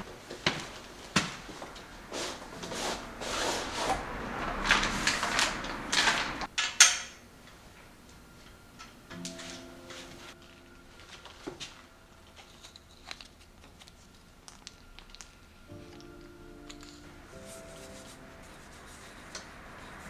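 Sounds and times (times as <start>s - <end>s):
plastic sleeve crinkling: 12.1s - 15.4s.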